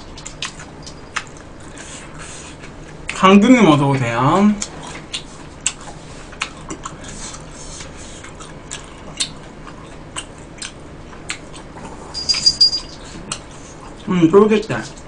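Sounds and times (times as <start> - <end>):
chewing and biting food: 0.0 - 3.2, 4.6 - 12.0.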